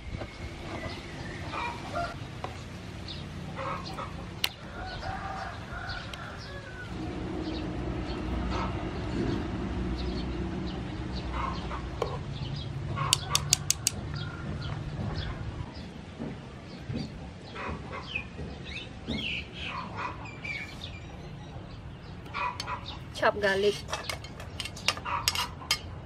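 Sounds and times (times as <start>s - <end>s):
chickens clucking: 3.4s - 6.9s, 21.1s - 26.0s
sharp metal clicks: 13.1s - 14.0s
metal tongs and strainer clinking: 23.4s - 25.9s.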